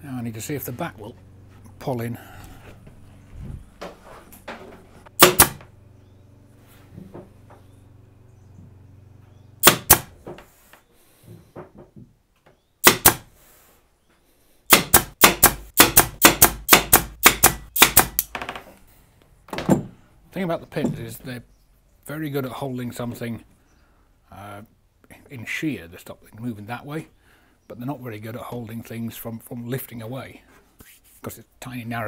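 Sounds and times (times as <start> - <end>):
pin nailer firing: 5.2 - 5.6, 9.6 - 10.2, 12.8 - 13.3, 14.7 - 18.3.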